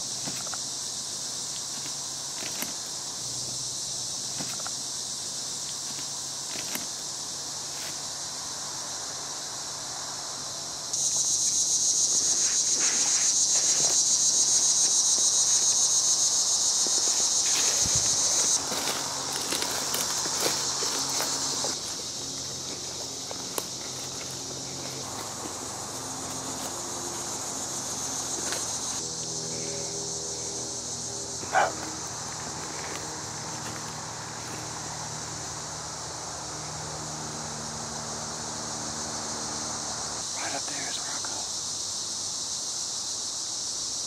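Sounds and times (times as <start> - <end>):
insects calling in chorus: 0.0 - 44.0
footsteps on leaf litter: 12.2 - 16.0, 16.6 - 29.0, 31.6 - 34.9.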